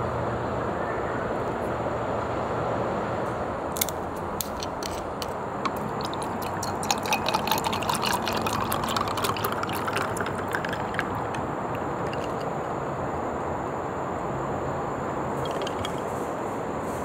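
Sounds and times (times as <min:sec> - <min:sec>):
steady background noise: 0:00.0 - 0:17.0
plastic screw cap clicking: 0:03.8 - 0:06.2
ice crackling: 0:03.8 - 0:12.5
coffee pouring into glass: 0:04.6 - 0:12.5, 0:15.4 - 0:16.0.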